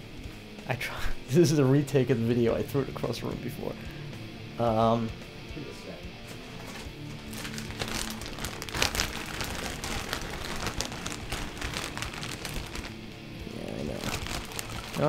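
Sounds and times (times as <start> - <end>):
objects rustling on a table: 6.2 - 13.0.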